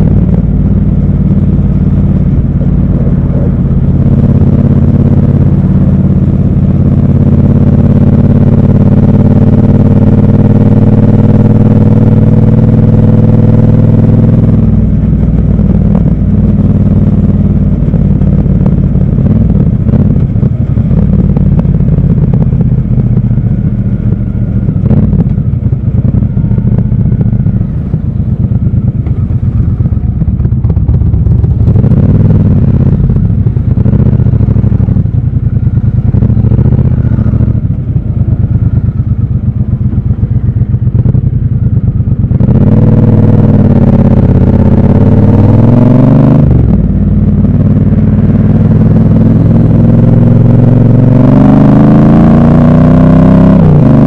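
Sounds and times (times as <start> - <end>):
motorcycle engine rumbling: 0.0 - 54.0.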